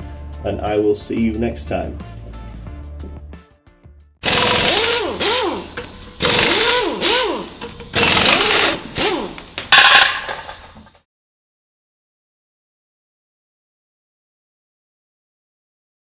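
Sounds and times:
power tool motor whine: 4.2s - 9.6s.

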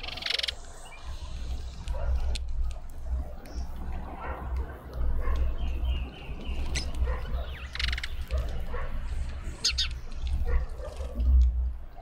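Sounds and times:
bird rattling call: 0.0s - 0.6s, 6.6s - 8.4s
small birds chirping: 0.0s - 12.0s
dog barking: 4.2s - 4.6s, 5.2s - 5.4s, 7.0s - 7.6s, 8.3s - 9.1s, 10.4s - 11.2s.

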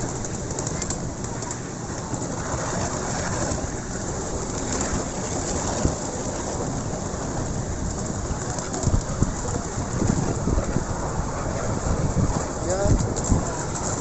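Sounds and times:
train wheels clattering on rails: 0.0s - 10.4s.

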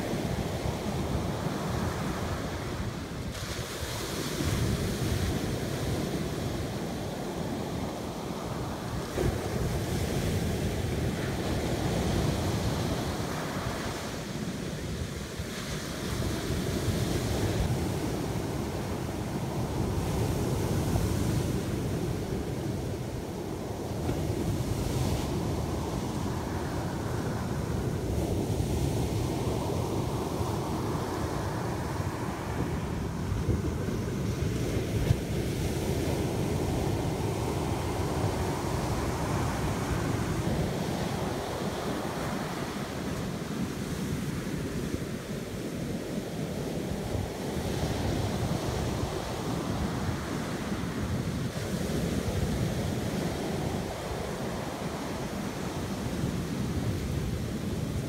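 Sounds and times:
ocean surf breaking: 0.0s - 58.0s
wind rumbling on microphone: 0.0s - 58.0s.

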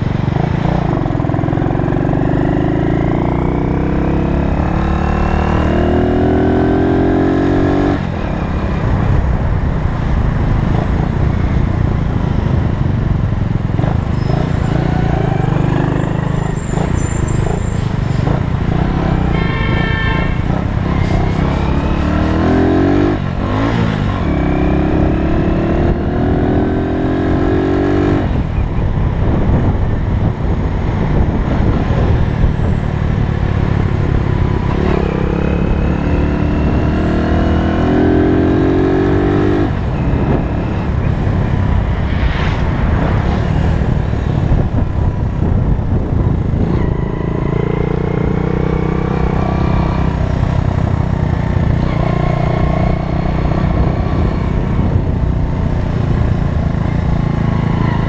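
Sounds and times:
wind noise on microphone: 0.0s - 58.0s.

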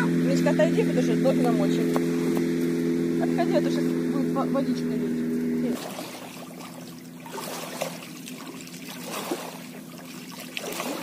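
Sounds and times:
steady hum: 0.0s - 11.0s
water pouring and trickling: 5.7s - 11.0s.

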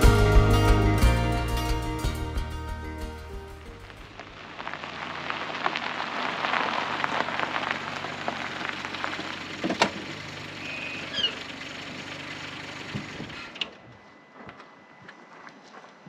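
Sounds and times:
car engine running quietly: 0.0s - 15.2s
tyres crunching on gravel: 3.6s - 16.0s.

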